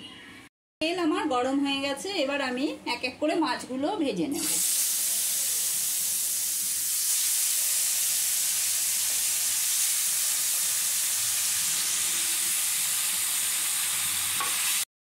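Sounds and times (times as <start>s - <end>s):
fish sizzling in a frying pan: 4.4s - 14.9s.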